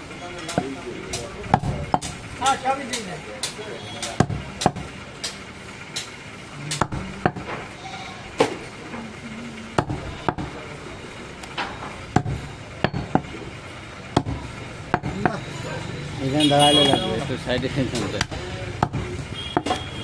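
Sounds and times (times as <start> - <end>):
cleaver chopping meat and bone: 0.4 - 2.2, 2.8 - 7.7, 9.7 - 10.6, 12.1 - 13.4, 14.1 - 15.4, 16.9 - 19.9.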